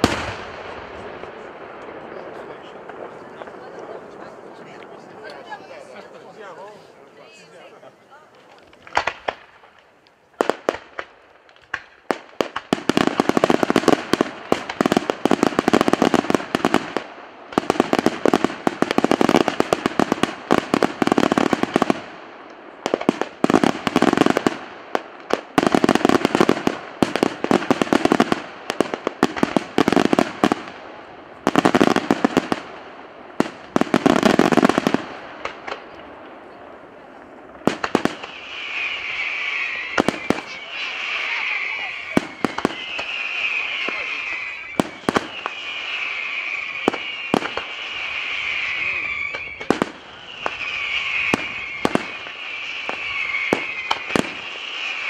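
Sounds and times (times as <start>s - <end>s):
firecracker volleys: 0.0s - 5.6s, 8.3s - 55.0s
firework bangs: 0.0s - 6.4s, 8.4s - 55.0s.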